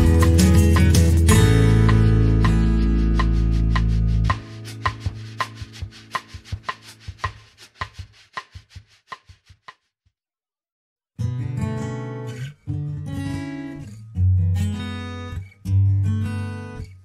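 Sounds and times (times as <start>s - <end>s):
background music: 0.0s - 6.3s
guitar track: 0.0s - 7.3s, 11.2s - 17.0s.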